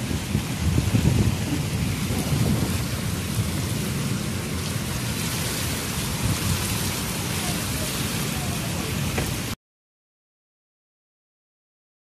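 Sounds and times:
heavy rain pouring: 0:00.0 - 0:09.6.

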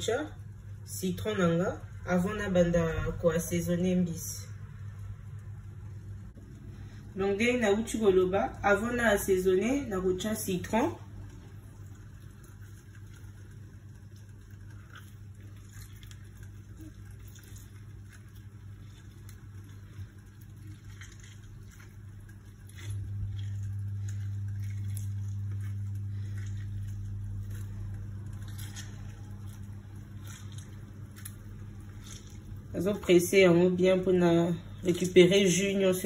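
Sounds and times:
steady low hum: 0:00.0 - 0:36.0
lemon squishing and dripping: 0:10.5 - 0:35.9.

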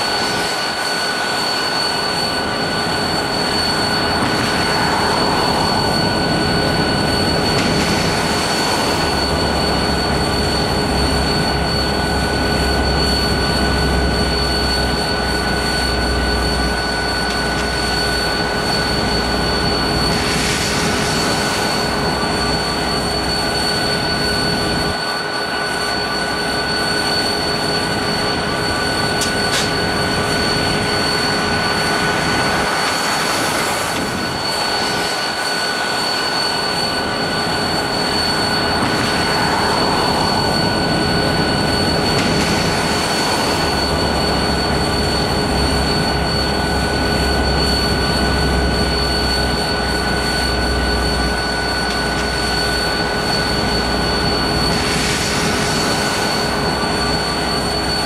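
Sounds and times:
diesel locomotive running: 0:00.0 - 0:58.0
high whine: 0:00.0 - 0:58.0
deep rumble: 0:02.7 - 0:11.6.

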